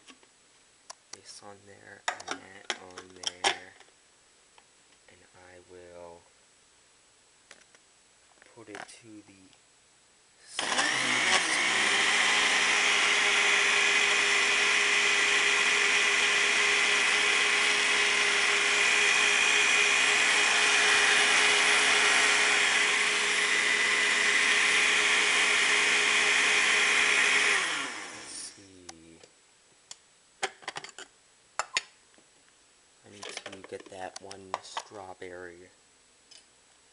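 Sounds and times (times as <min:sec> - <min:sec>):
blender motor running: 0:10.6 - 0:28.5.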